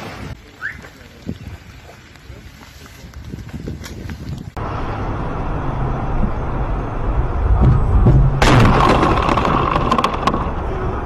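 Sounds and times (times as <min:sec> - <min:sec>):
car engine and tyres rumbling: 0:03.1 - 0:11.0.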